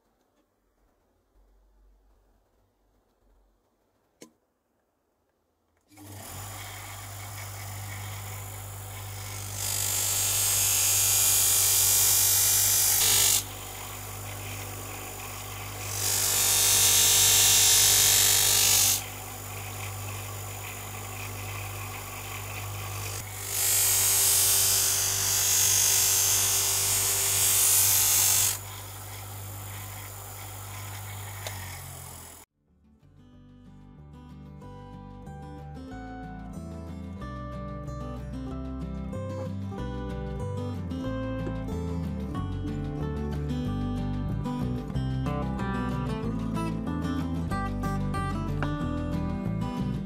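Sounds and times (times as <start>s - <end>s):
bench grinder motor hum: 5.9s - 32.5s.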